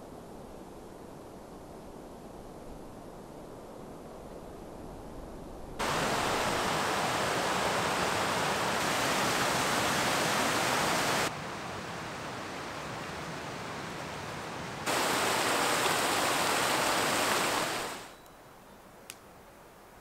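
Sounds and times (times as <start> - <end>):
quiet steady hiss: 0.0 - 20.0
creek rushing over rocks: 5.8 - 18.1.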